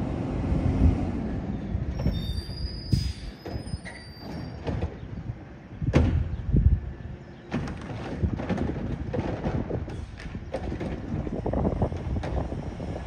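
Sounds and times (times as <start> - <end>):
heavy knocks of truck arm: 5.8 - 6.4, 7.5 - 12.6.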